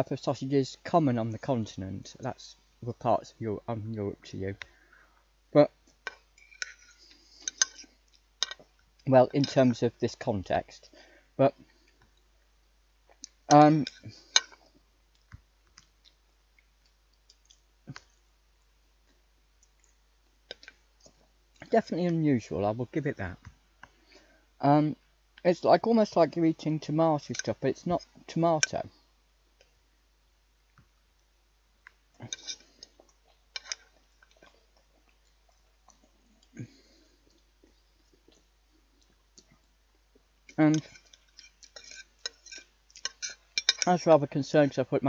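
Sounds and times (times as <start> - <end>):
knife and fork on plate: 6.4 - 8.6, 32.3 - 32.8, 33.6 - 33.9, 40.7 - 43.9
chewing: 32.2 - 43.8.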